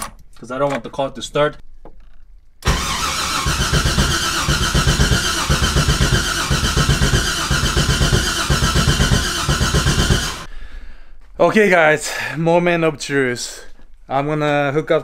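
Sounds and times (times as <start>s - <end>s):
engine cranking on starter motor: 2.6s - 10.5s.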